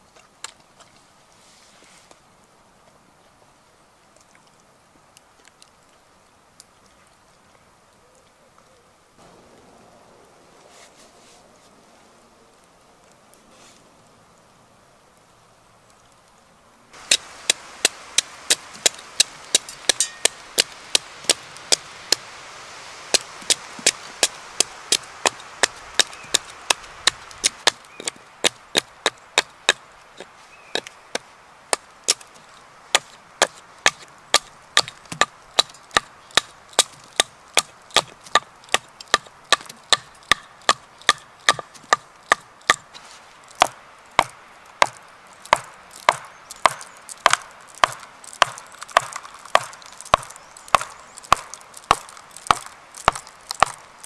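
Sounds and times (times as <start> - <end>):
hatchet chopping wood: 17.0 - 22.3, 23.1 - 30.9, 32.9 - 42.9, 43.6 - 53.8.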